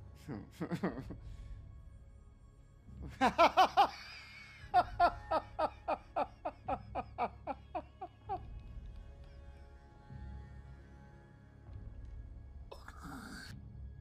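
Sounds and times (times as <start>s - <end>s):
man laughing hard: 0.5s - 1.2s, 3.1s - 8.4s.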